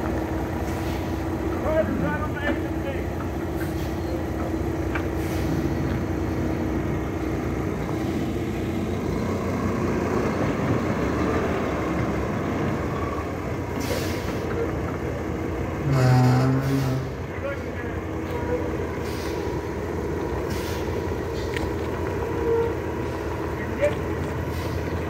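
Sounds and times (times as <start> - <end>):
heavy truck engines running: 0.0 - 25.0
loud pitched horn blast: 15.8 - 17.2.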